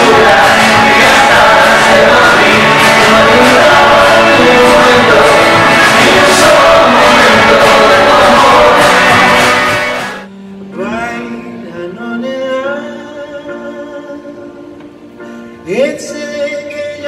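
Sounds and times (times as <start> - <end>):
loud live band music: 0.0 - 10.3
piano: 0.0 - 17.0
man singing softly: 10.7 - 14.8, 15.6 - 17.0.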